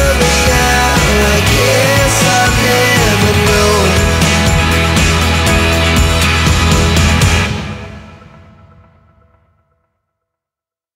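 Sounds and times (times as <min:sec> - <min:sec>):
background music with drums: 0:00.0 - 0:08.2.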